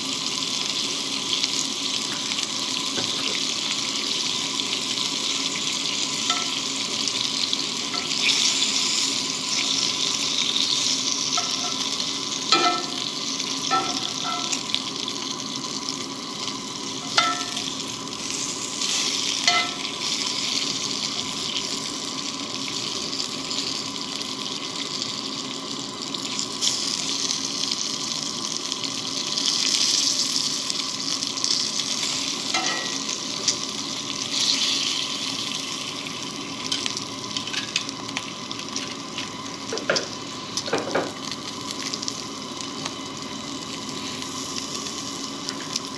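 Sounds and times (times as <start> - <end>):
bacon sizzling in a skillet: 0.0 - 45.9
metal tongs clinking on pan: 6.3 - 6.6, 7.9 - 8.3, 11.3 - 11.9, 12.5 - 13.1, 13.7 - 14.7, 17.0 - 17.7, 19.4 - 19.9, 32.5 - 33.6.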